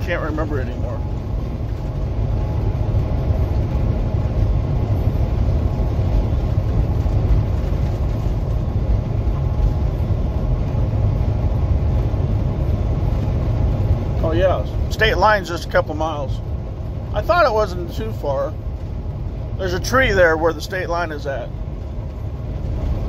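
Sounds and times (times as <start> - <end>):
wind noise: 0.0 - 14.9
road noise: 0.0 - 23.0
truck engine drone: 0.0 - 23.0.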